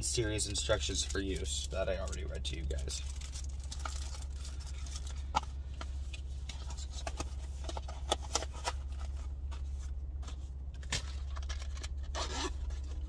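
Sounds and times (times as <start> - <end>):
low hum inside a car: 0.0 - 13.0
glasses case and paper handled: 3.1 - 13.0.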